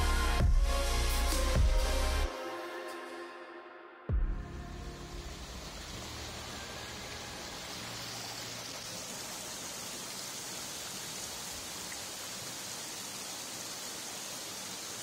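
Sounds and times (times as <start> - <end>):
running water: 4.9 - 15.0.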